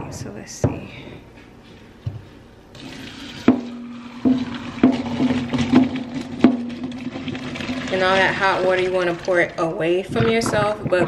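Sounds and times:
water pouring into sink: 2.8s - 9.7s
metallic pot knocks: 3.4s - 7.2s.

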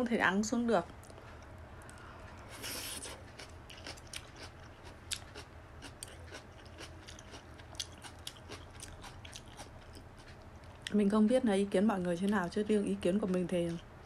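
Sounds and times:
chewing food: 1.0s - 11.0s.

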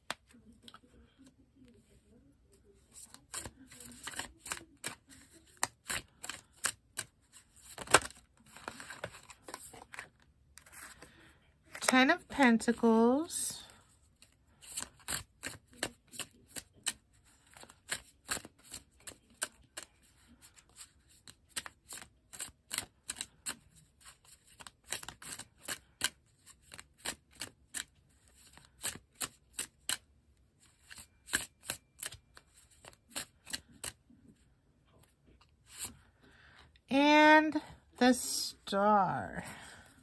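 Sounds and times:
cards being shuffled: 2.8s - 12.1s, 14.2s - 30.0s, 30.6s - 34.1s, 35.3s - 36.0s.

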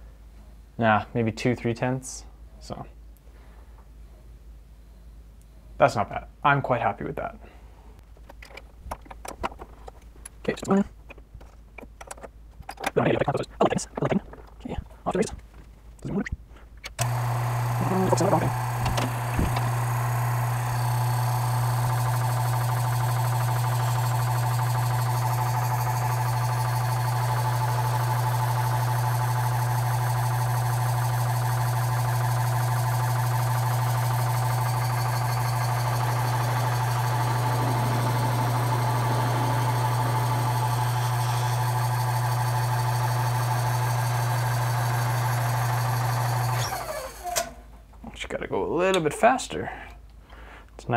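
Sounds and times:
lathe motor hum and whine: 17.0s - 47.3s.

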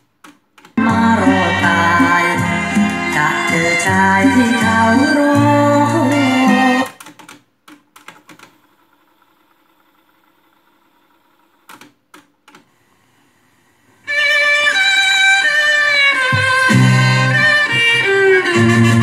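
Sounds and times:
tape hiss and hum: 0.0s - 7.3s, 12.5s - 19.0s
song playing from tape: 0.8s - 6.9s, 14.1s - 19.0s.

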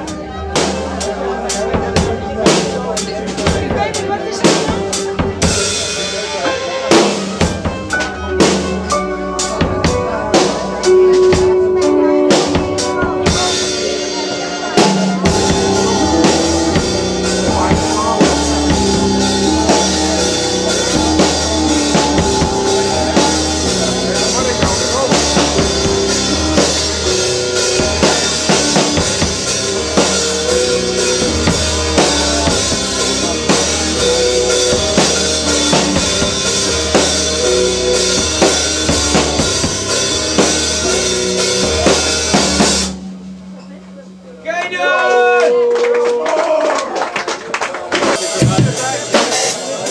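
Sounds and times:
violin and keyboard notes: 0.0s - 45.4s
drum kit playing: 0.0s - 45.7s, 47.8s - 49.9s
live band music: 0.0s - 49.9s
deep sustained bass: 8.2s - 44.9s.

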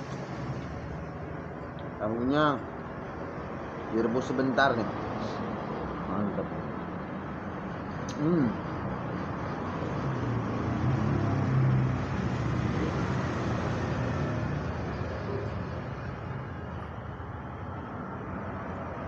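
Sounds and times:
traffic hum: 0.0s - 19.0s
vehicle engine passing: 8.2s - 19.0s.

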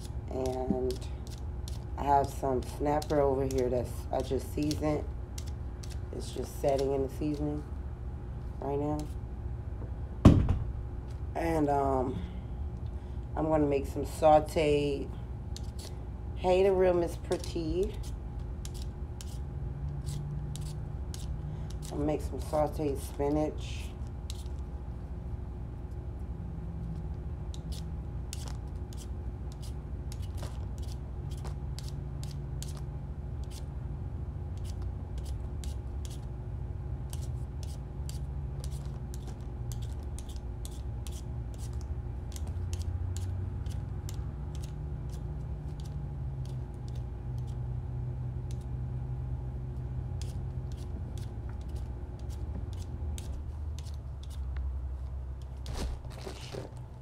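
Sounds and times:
vegetable peeler scraping potato: 0.0s - 7.6s, 16.5s - 23.5s, 24.3s - 24.6s, 27.5s - 32.8s, 33.4s - 33.7s, 34.6s - 36.3s, 37.1s - 47.6s, 50.1s - 54.5s
steady low hum: 0.0s - 57.0s.

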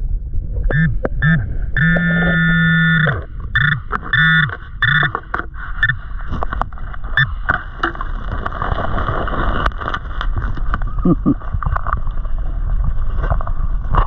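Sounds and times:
gravel clicking and grinding: 0.0s - 14.0s
underwater water wash: 0.0s - 14.0s
metal detector beeping: 0.7s - 6.1s, 7.1s - 7.4s.

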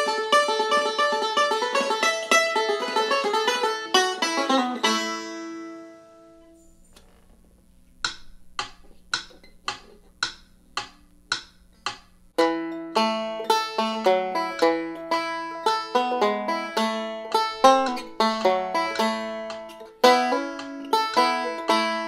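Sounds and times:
banjo played fast: 0.0s - 6.2s, 12.4s - 22.0s
sharp clicks keeping time: 8.0s - 12.4s, 17.3s - 21.8s.

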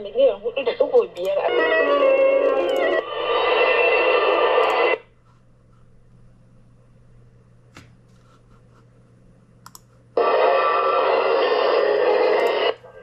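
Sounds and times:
radio broadcast playing: 0.0s - 5.0s, 10.2s - 13.0s
radio static hiss: 0.1s - 5.1s, 10.2s - 13.0s
radio tuning clicks: 10.2s - 12.9s.

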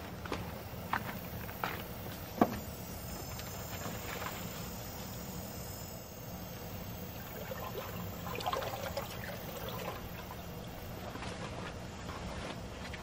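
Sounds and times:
water trickling: 6.0s - 11.0s.

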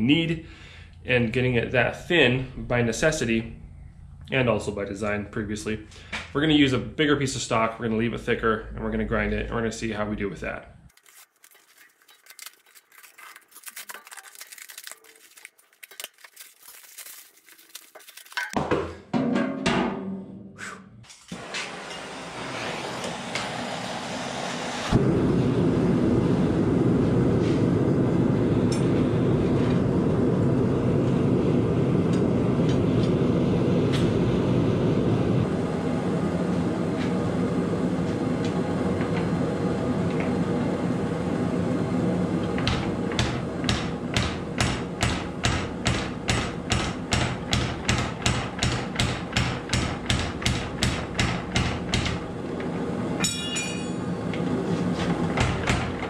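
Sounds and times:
gas forge rushing: 20.6s - 56.0s
power hammer pounding steel: 42.6s - 52.3s, 55.2s - 56.0s.

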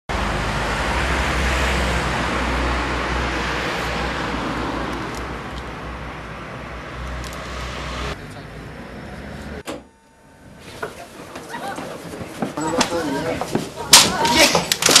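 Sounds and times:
rushing street noise with deep rumble: 0.1s - 9.7s.

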